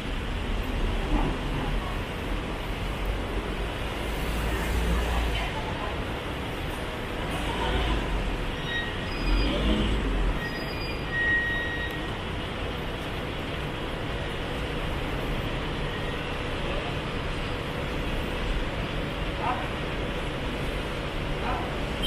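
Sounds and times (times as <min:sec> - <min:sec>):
roadway traffic noise: 0:00.0 - 0:22.0
faint thin high squeals: 0:08.5 - 0:09.7, 0:10.4 - 0:12.1.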